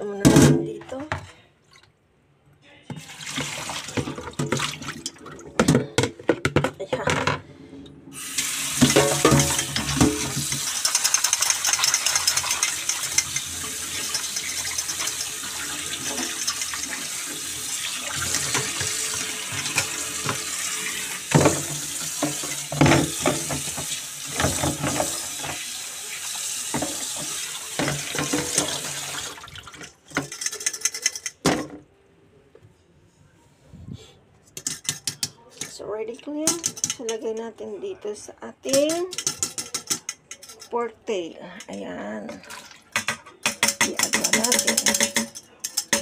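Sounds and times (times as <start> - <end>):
tap water splashing into strainer: 2.9 - 5.8, 42.3 - 45.3.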